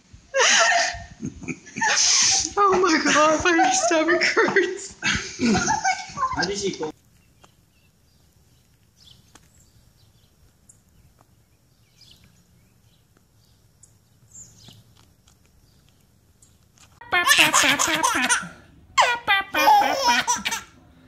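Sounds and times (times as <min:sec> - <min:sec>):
low outdoor background: 0:00.0 - 0:21.0.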